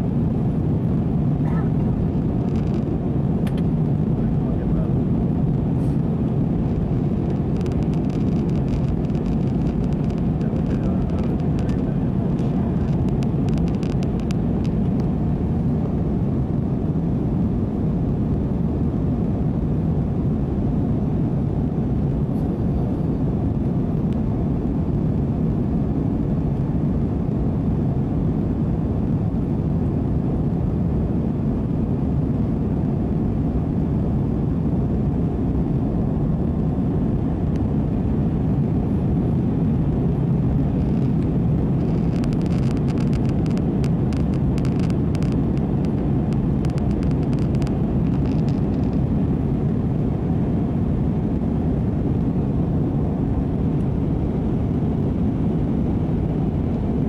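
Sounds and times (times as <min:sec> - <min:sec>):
jet airliner cabin noise: 0:00.0 - 0:57.0
faint crackle of ticks: 0:02.4 - 0:03.7, 0:07.2 - 0:15.1, 0:40.8 - 0:49.0.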